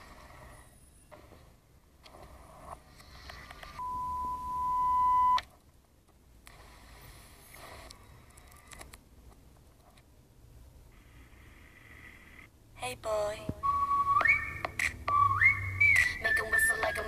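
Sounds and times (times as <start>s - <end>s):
high electronic beep tone: 3.8s - 5.4s.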